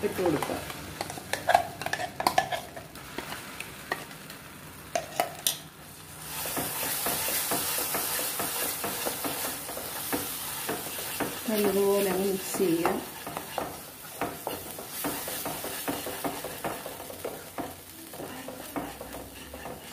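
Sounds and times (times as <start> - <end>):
paste sizzling in butter: 0.0 - 19.9
wooden spoon stirring: 6.3 - 19.9.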